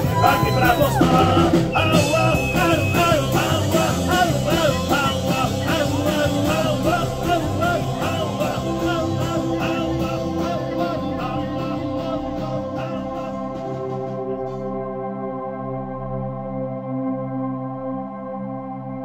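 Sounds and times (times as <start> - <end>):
music with steady beat: 0.0 - 14.8.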